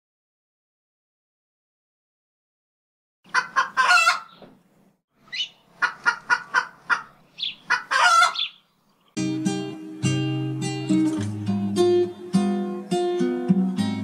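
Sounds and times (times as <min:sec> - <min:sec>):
chicken clucking and squawking: 0:03.3 - 0:04.5, 0:05.2 - 0:08.6
acoustic guitar: 0:09.2 - 0:14.0.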